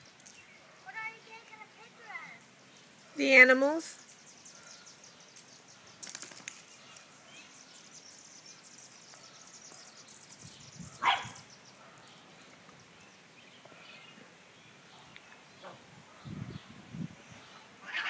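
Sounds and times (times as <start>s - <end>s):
dog barking: 11.0s - 12.1s.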